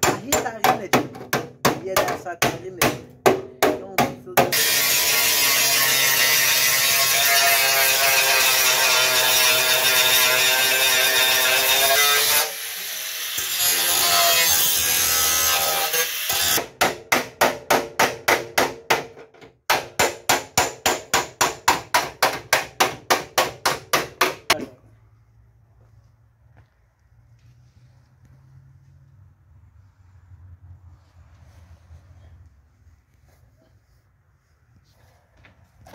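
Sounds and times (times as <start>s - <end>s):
angle grinder cutting metal: 4.5s - 16.6s.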